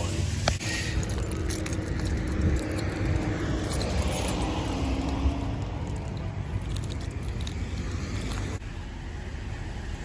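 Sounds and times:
footsteps on asphalt: 0.5 - 8.6
leash clip jingling: 0.7 - 8.6.

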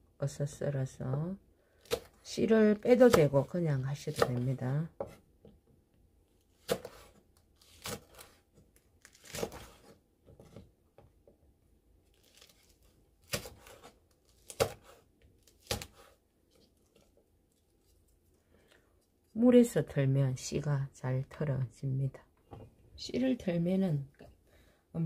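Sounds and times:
knife slicing on cutting board: 6.6 - 8.4, 9.1 - 10.6.

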